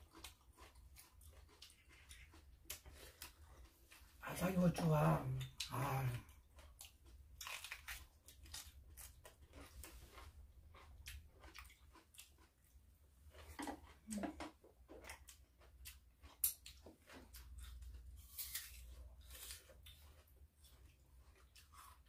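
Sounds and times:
crunchy chewing of raw pepper: 0:00.0 - 0:04.2, 0:05.4 - 0:22.0.

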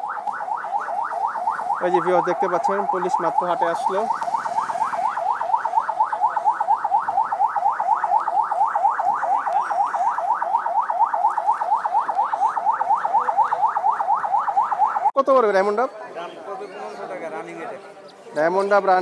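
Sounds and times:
police siren fast yelp: 0:00.0 - 0:15.2.

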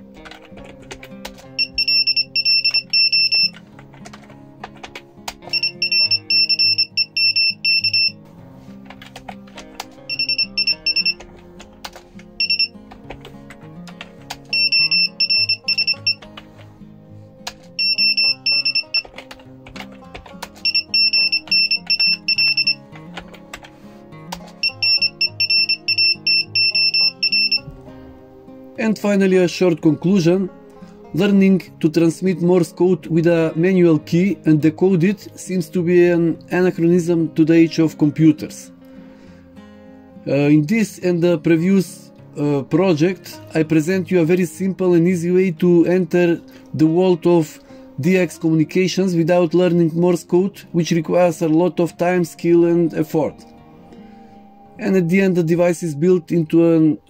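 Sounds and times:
buzzer beeping morse code: 0:01.6 - 0:03.6, 0:05.4 - 0:08.2, 0:10.1 - 0:11.2, 0:12.4 - 0:12.8, 0:14.5 - 0:16.2, 0:17.8 - 0:19.1, 0:20.6 - 0:22.8, 0:24.6 - 0:27.7.

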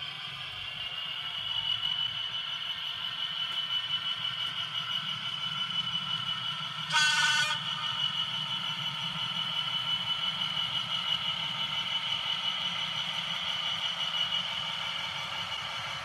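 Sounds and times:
model train electric hum: 0:00.0 - 0:16.0
train horn blast: 0:06.9 - 0:07.7.

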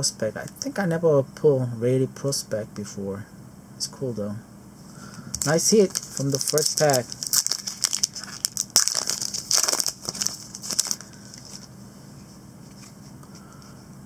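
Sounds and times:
wrapper tearing and crinkling: 0:05.3 - 0:11.7.

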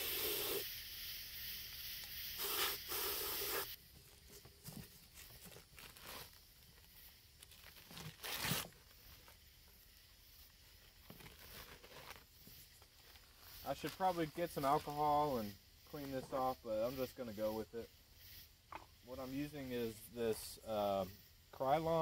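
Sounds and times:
spray can hissing: 0:00.0 - 0:07.8, 0:08.4 - 0:22.0
newspaper rustling and tearing: 0:03.5 - 0:09.4, 0:11.0 - 0:14.1.

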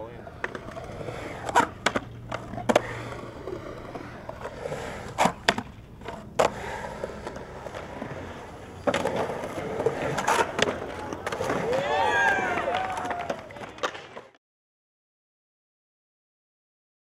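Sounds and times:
skateboard wheels rolling on concrete: 0:00.0 - 0:14.4
skateboard clacking down: 0:00.2 - 0:14.4.

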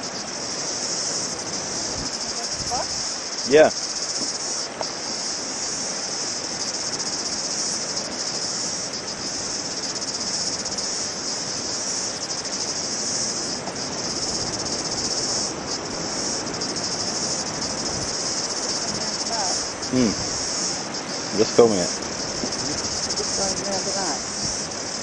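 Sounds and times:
cicadas chorus: 0:00.0 - 0:25.0.

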